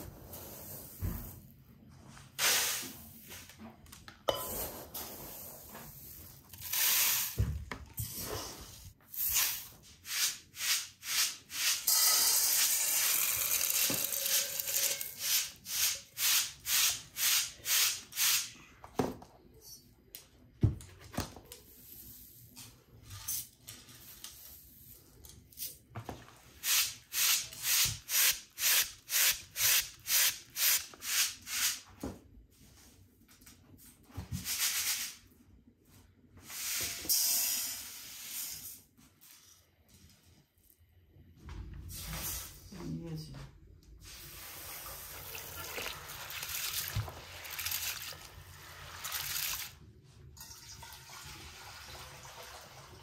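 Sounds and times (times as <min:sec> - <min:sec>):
corn kernels poured into bowl: 0:11.9 - 0:15.4.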